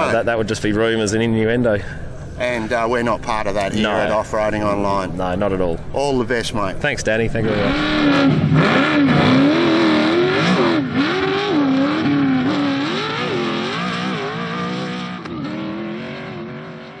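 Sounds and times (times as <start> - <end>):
racing engine revving: 7.4 - 17.0.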